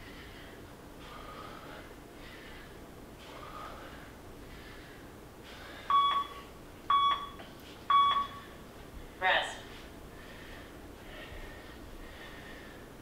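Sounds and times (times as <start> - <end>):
heavy breathing: 0.0 - 6.5, 9.7 - 13.0
short electronic beeps: 5.9 - 8.4.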